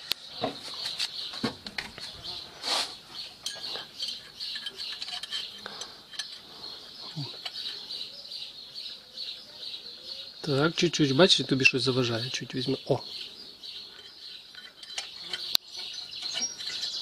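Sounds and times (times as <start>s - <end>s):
light metallic clicks and clinks: 3.3s - 6.5s, 7.1s - 8.1s, 13.2s - 17.0s.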